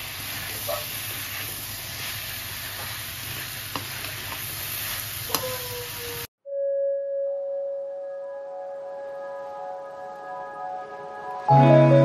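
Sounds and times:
vegetables sizzling in a pan: 0.0s - 6.3s.

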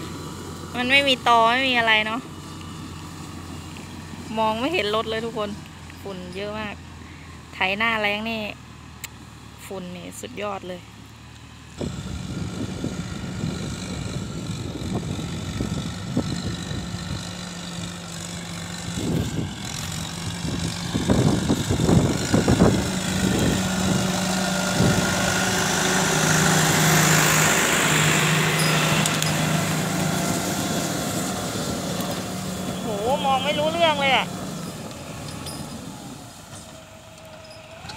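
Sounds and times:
tractor diesel engine running: 0.0s - 37.9s
plough bumping: 13.8s - 37.9s.

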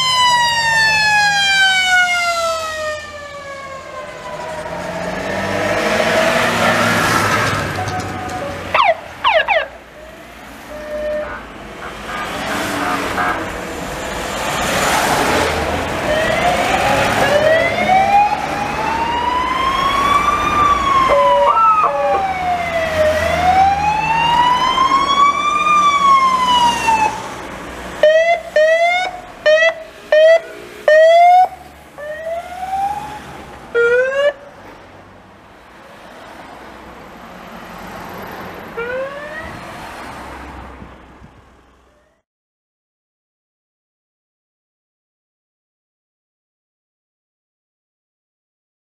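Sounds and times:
police siren wailing and whooping: 0.0s - 10.1s, 16.0s - 27.2s, 28.0s - 34.4s, 38.8s - 40.0s
cars passing: 0.0s - 42.2s.

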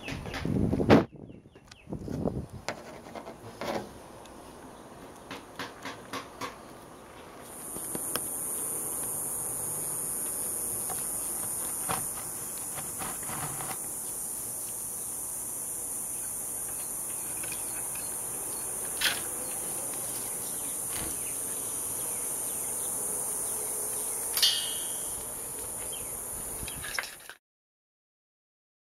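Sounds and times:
high-pitched insect drone: 7.5s - 26.9s.

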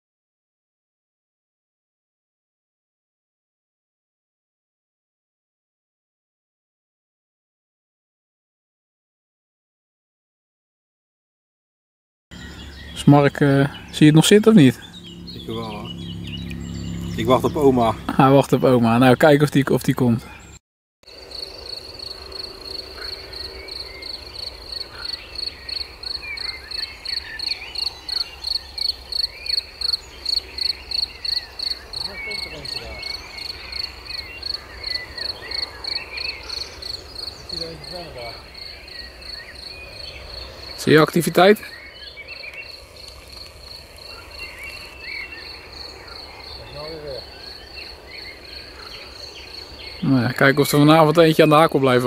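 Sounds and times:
cricket chirping: 21.0s - 52.0s.

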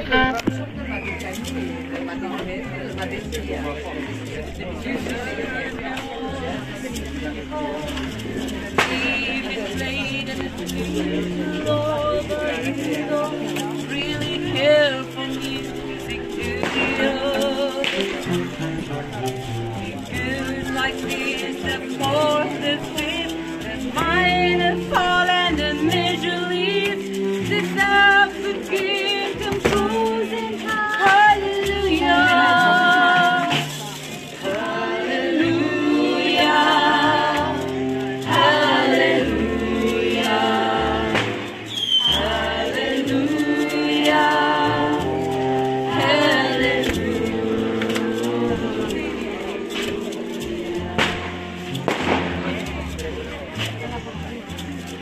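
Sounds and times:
baritone saxophone: 0.0s - 42.9s, 43.6s - 55.0s
double bass: 0.0s - 55.0s
person singing: 5.1s - 51.8s
drums: 50.7s - 53.1s.

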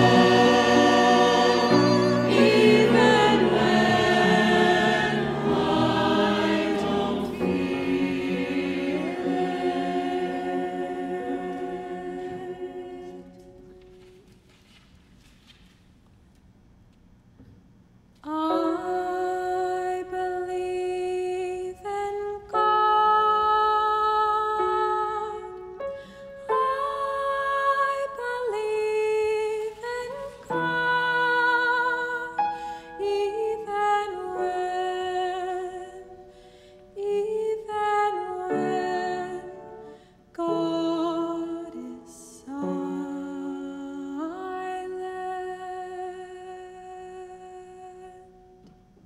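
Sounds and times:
woman singing slow melody: 18.2s - 25.8s, 26.5s - 36.3s, 36.9s - 48.7s.

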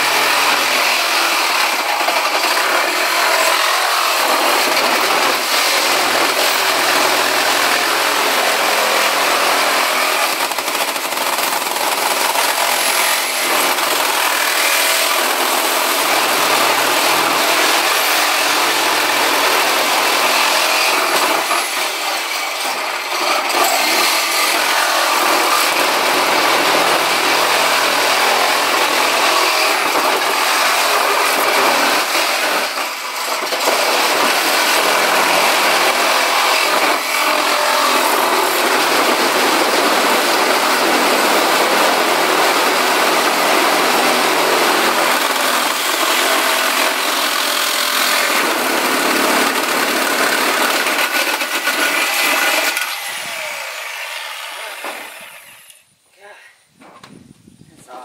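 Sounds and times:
reciprocating saw cutting sheet metal: 0.0s - 55.8s.

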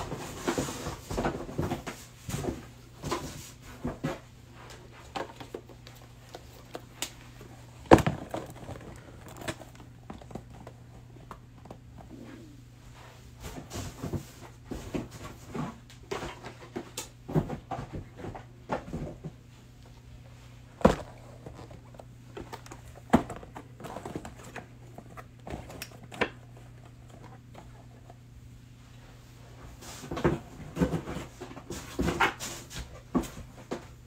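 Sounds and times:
cardboard boxes tapping and knocking: 0.0s - 4.2s, 5.1s - 12.1s, 20.8s - 27.7s, 30.1s - 33.9s.

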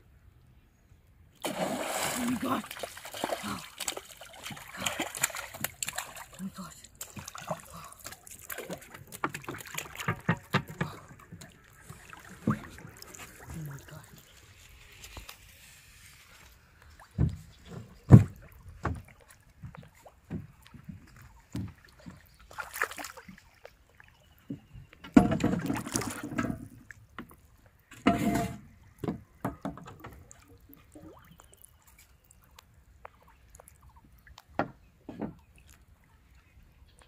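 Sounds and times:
footsteps on wooden boat planks: 17.0s - 22.2s.

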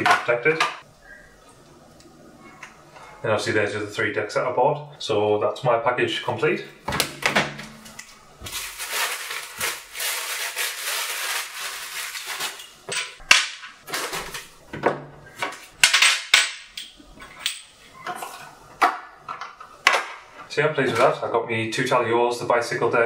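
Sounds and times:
packaging rustling: 8.0s - 12.8s.

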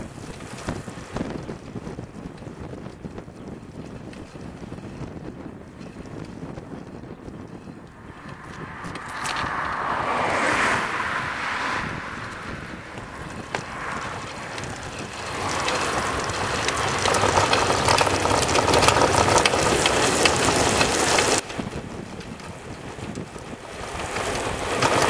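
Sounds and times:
tyre noise on asphalt: 0.0s - 25.0s
wind buffeting microphone: 0.0s - 25.0s
rattle of small clicks: 8.2s - 9.8s, 13.0s - 25.0s.

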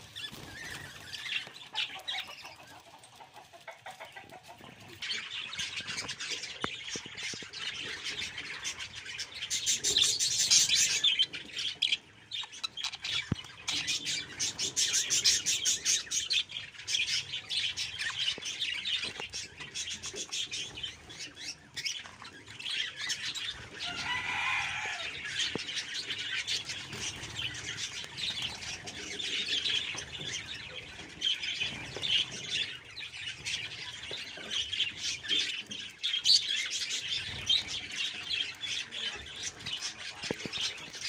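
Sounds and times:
wings fluttering: 0.0s - 11.0s, 23.0s - 32.7s
budgerigars chattering and chirping: 0.0s - 41.0s.

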